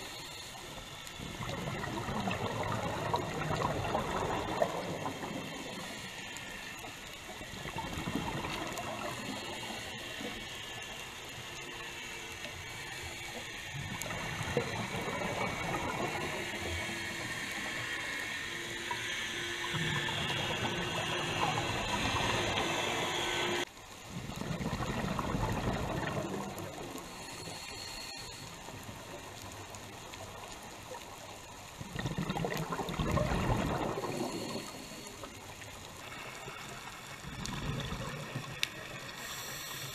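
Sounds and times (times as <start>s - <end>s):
faint hum: 0.0s - 39.9s
underwater crackling hiss: 0.0s - 39.9s
bubbling rushes: 0.9s - 6.1s, 7.3s - 9.8s, 13.8s - 18.0s, 19.4s - 23.5s, 24.1s - 27.2s, 28.8s - 39.1s.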